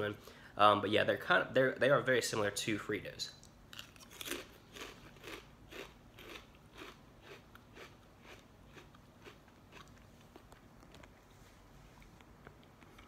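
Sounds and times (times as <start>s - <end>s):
chewing crunchy chips: 3.7s - 11.2s.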